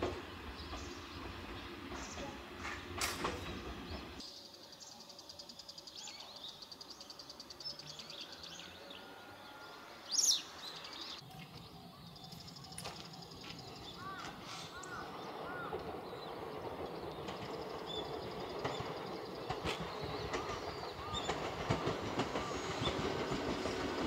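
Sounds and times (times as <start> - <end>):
train rumble: 0.0 - 4.5, 6.5 - 24.0
small birds chirping: 10.1 - 24.0.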